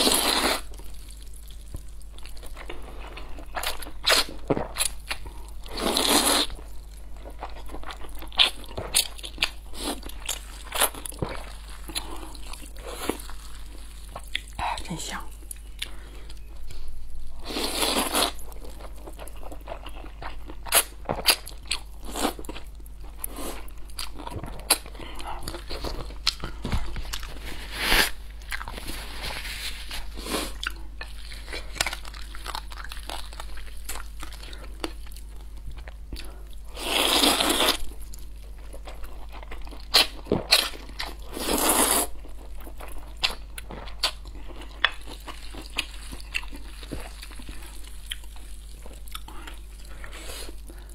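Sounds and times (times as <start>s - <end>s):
wet chewing and smacking: 30.6s - 36.4s, 41.9s - 50.9s.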